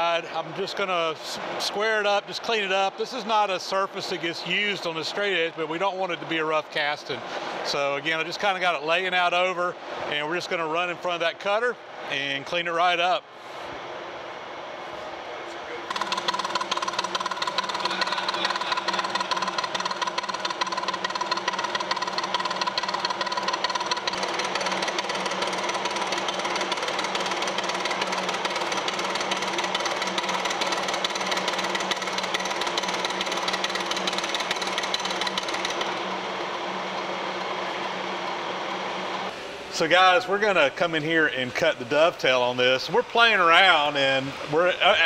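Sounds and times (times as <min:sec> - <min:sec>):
milling machine hum: 0:14.6 - 0:40.2
milling cutter rattling on metal: 0:15.9 - 0:36.0.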